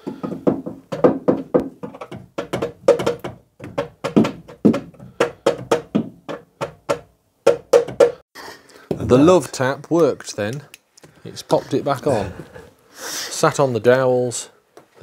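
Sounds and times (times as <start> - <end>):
rapid hammer taps on metal: 0.1 - 8.2.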